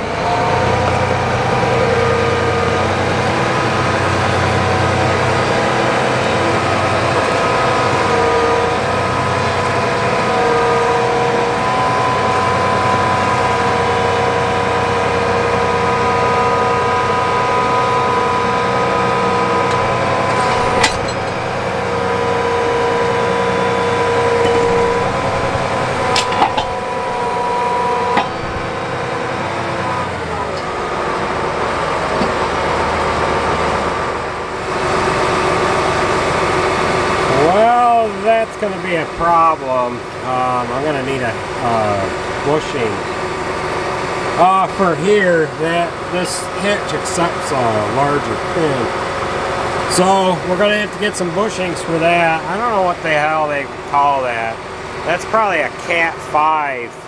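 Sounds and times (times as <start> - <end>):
steady whine: 0.0 - 57.0
tractor diesel engine running: 0.0 - 57.0
sharp knocks: 24.3 - 29.0.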